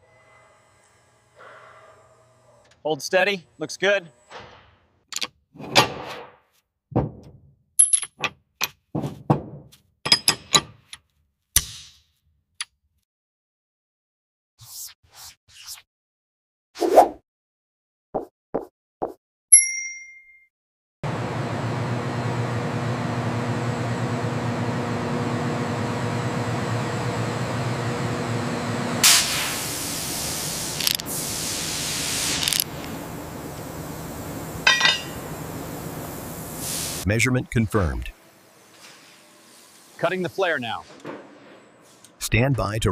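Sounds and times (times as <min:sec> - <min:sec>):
metal clinks of wrench and bolt: 0:07.8 - 0:08.3, 0:10.1 - 0:10.8
industrial machinery hum: 0:21.0 - 0:40.2
loud bursts of hissing: 0:29.0 - 0:34.6, 0:35.5 - 0:37.1.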